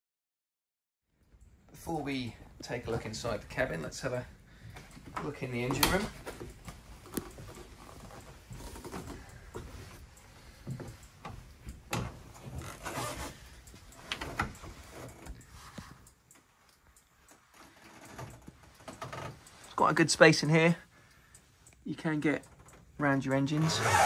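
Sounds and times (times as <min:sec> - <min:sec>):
footsteps on wooden steps: 0:04.6 - 0:14.6
clothes rubbing against hatch: 0:05.2 - 0:16.0.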